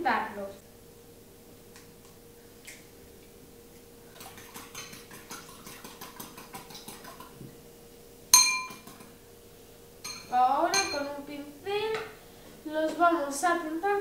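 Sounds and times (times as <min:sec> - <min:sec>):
spoon beating egg in a bowl: 0:04.1 - 0:07.5, 0:08.4 - 0:09.2
spoon clinking on china: 0:08.4 - 0:08.8, 0:10.0 - 0:11.1.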